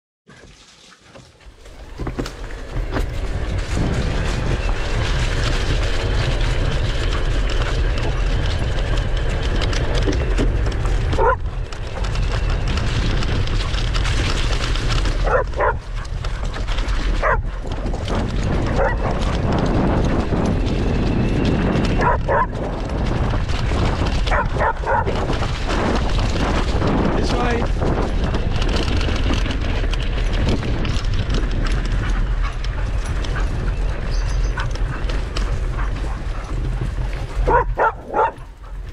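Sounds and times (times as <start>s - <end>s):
bicycle tyres rolling on grass: 0.3s - 38.9s
wind rumble: 1.4s - 38.9s.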